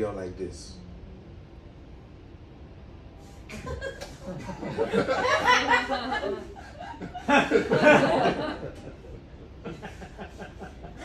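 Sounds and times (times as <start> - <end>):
audience laughing: 3.5 - 11.0.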